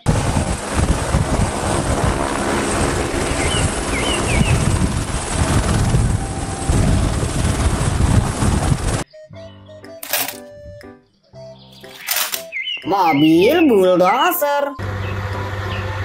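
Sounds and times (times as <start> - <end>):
helicopter rotor blade chop: 0.0 - 9.0
high turbine whine: 0.0 - 9.0.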